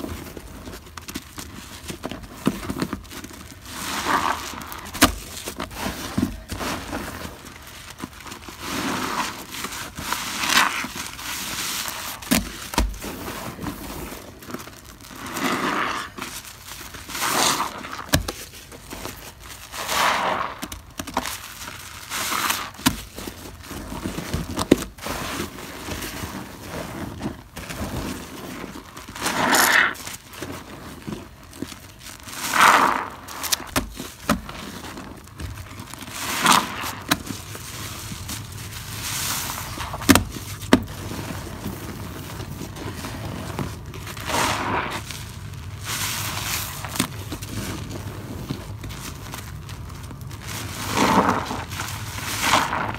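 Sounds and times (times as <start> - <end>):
sponge squelching in foamy water: 3.0 - 52.9.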